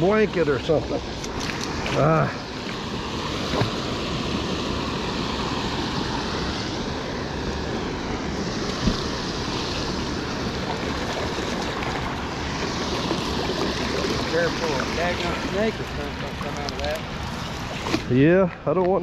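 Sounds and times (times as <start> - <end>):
water rushing over a dam: 0.0 - 19.0.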